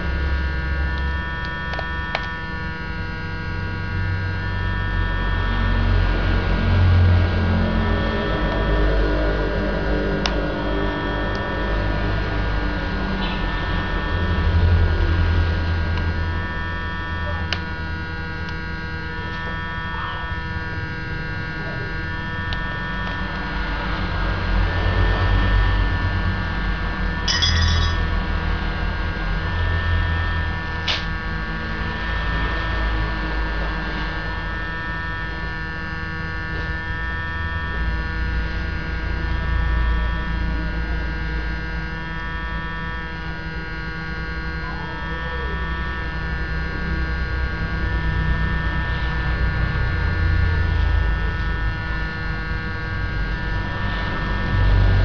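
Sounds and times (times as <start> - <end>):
electrical mains hum: 0.0 - 55.0.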